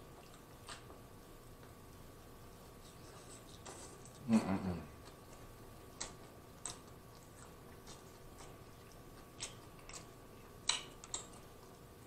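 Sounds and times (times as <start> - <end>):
wet chewing mouth clicks: 0.0 - 1.0, 5.0 - 12.0
lip smacks: 5.0 - 11.9.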